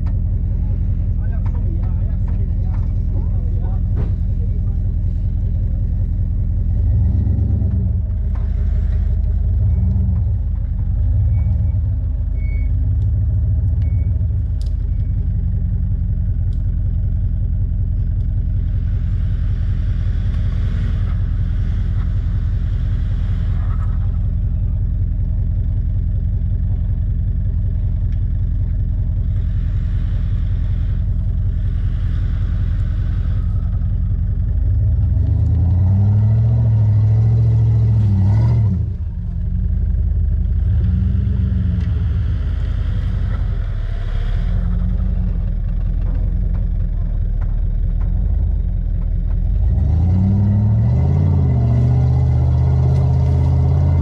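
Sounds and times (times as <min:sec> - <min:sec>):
pickup truck engine running: 0:00.0 - 0:54.0.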